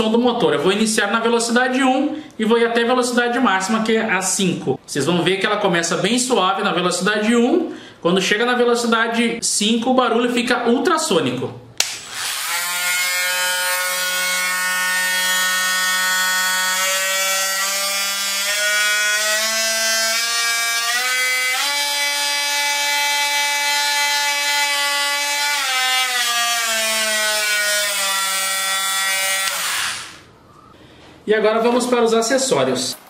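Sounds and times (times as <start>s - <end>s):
multi-tool motor whine: 12.0s - 30.3s.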